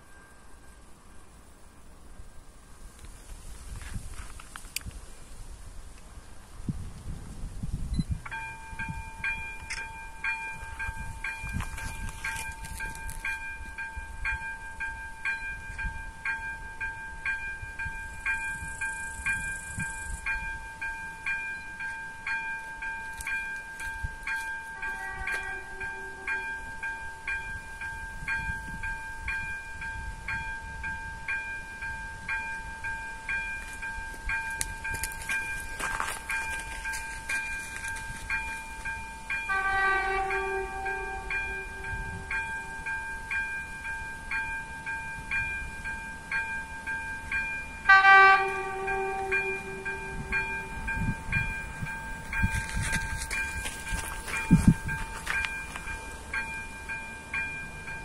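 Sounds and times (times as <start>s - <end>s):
level-crossing bell ringing: 8.3s - 58.0s
distant train horn: 24.4s - 27.7s, 36.6s - 42.9s, 47.8s - 56.3s.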